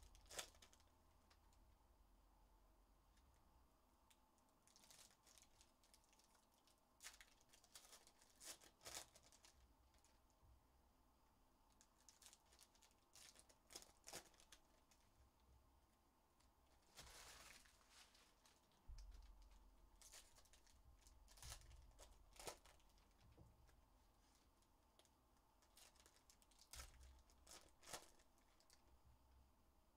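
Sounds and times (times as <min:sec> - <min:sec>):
foil wrappers crinkling and tearing: 0:00.0 - 0:00.8, 0:04.6 - 0:10.2, 0:11.9 - 0:15.0, 0:16.8 - 0:23.3, 0:25.0 - 0:28.8.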